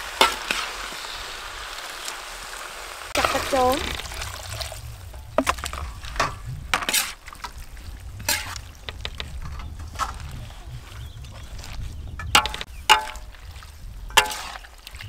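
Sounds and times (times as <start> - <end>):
spatula scraping and clanking wok: 0.1 - 1.1, 3.2 - 7.6, 8.2 - 10.4, 14.1 - 14.7
low steady rumble: 3.2 - 14.4.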